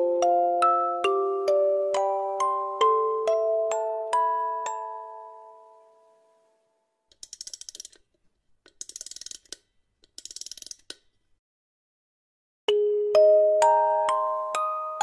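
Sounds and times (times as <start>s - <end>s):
music box lullaby: 0.0s - 6.5s, 12.7s - 15.0s
wind-up key ratchet clicks: 7.1s - 8.1s, 8.7s - 11.1s.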